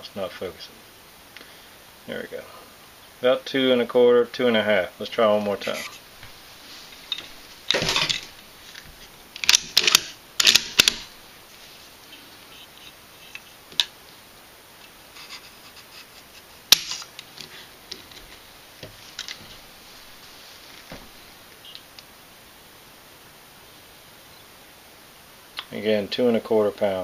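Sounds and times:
metallic clatter of rifle handling: 0:06.2 - 0:11.1.

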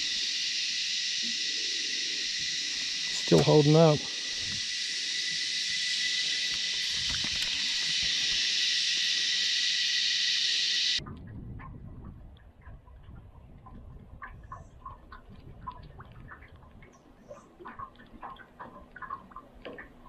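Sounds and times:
high-pitched hiss with thin whine: 0:00.0 - 0:11.0
low rumble: 0:11.0 - 0:16.3.

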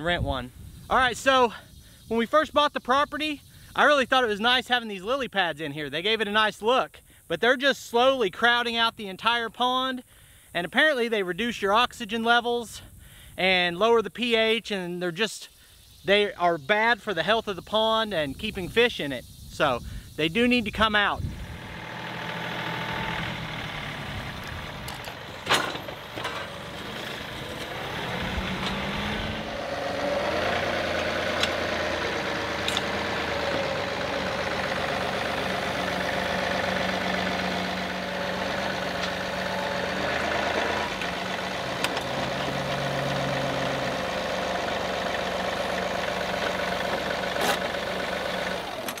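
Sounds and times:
tractor diesel engine running: 0:20.7 - 0:49.0.

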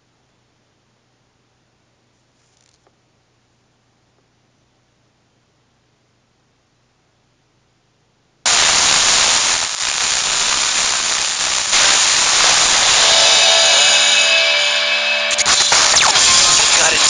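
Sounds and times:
loud radio static hiss: 0:08.5 - 0:17.0
faint wavering station audio: 0:09.8 - 0:17.0.

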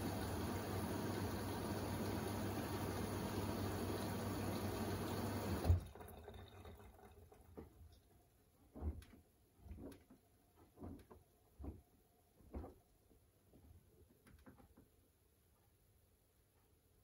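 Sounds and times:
washing machine filling with water: 0:00.0 - 0:08.0
washing machine clunk: 0:02.5 - 0:05.9.

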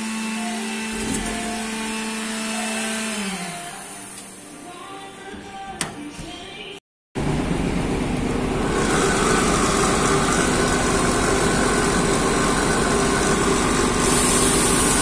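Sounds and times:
pump humming: 0:07.3 - 0:15.0
blast gun spraying hiss: 0:14.0 - 0:15.0.

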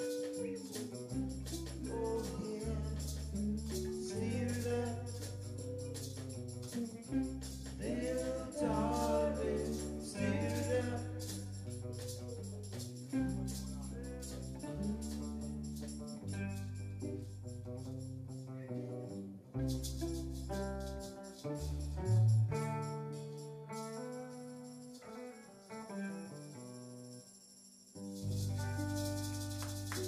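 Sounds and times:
live reggae band playing: 0:00.0 - 0:16.2
hand shakers: 0:00.0 - 0:18.3, 0:19.6 - 0:25.9, 0:27.0 - 0:30.0.

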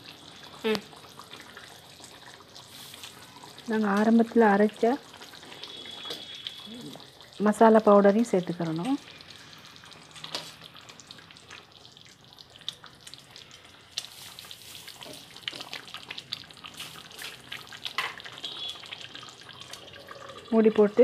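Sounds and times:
curry simmering with small pops: 0:00.0 - 0:21.0.

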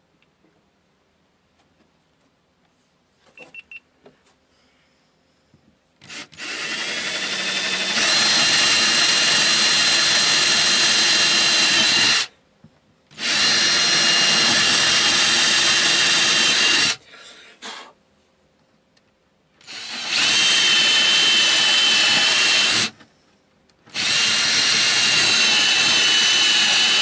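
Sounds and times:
cordless drill boring into fibreglass: 0:06.0 - 0:12.3, 0:13.1 - 0:17.0, 0:19.6 - 0:23.0, 0:23.9 - 0:27.0.

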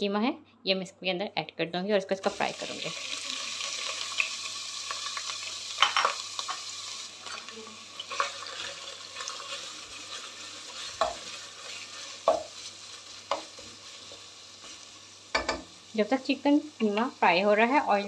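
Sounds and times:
mince sizzling in hot oil: 0:02.1 - 0:18.0
spatula scraping and knocking pan: 0:09.4 - 0:15.7.

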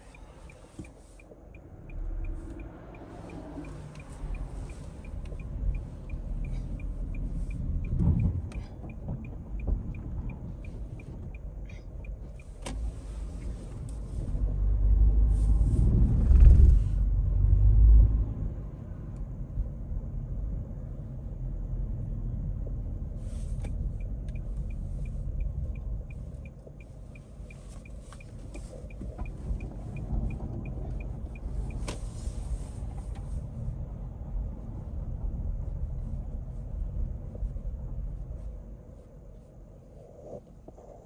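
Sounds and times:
turn signal ticking: 0:00.0 - 0:14.5, 0:23.6 - 0:33.3
road rumble in car cabin: 0:00.0 - 0:41.0.

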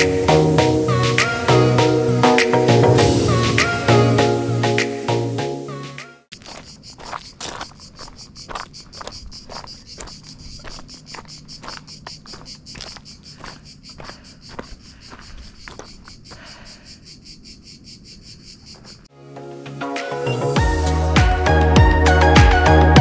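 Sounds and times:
cicadas chirring: 0:00.0 - 0:05.5, 0:06.3 - 0:19.1
footsteps crunching on stony trail: 0:06.3 - 0:16.5.

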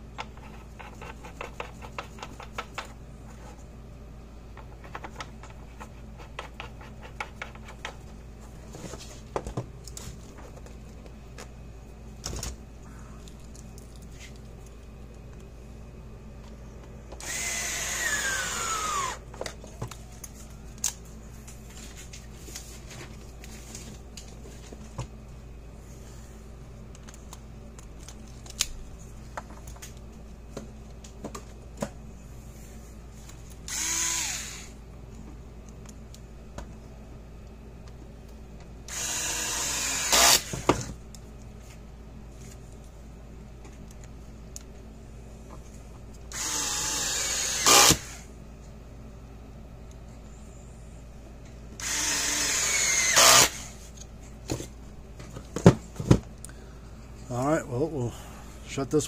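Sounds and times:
handheld power tool whining: 0:17.2 - 0:19.2, 0:33.7 - 0:34.8, 0:38.9 - 0:40.7, 0:46.3 - 0:48.2, 0:51.8 - 0:53.8.

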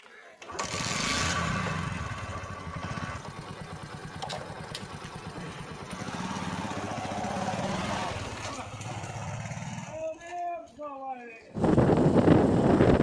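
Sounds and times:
motorcycle engine idling: 0:01.8 - 0:10.0.

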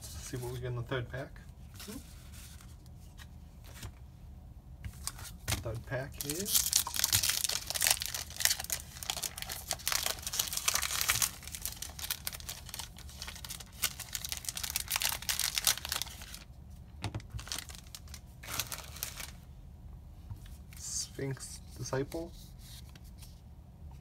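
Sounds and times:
foil wrapper crinkling and tearing: 0:06.2 - 0:16.5, 0:17.3 - 0:19.4.

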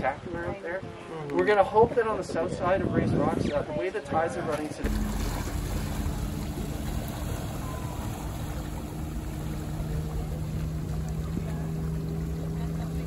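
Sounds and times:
wind: 0:00.0 - 0:13.0
motorboat engine hum: 0:04.8 - 0:13.0
rushing water: 0:04.8 - 0:13.0.

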